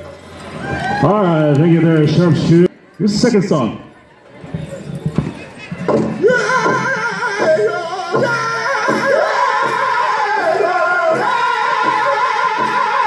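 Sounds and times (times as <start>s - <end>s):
big drum beat: 5.7s - 13.0s
high voices singing in unison: 6.2s - 13.0s.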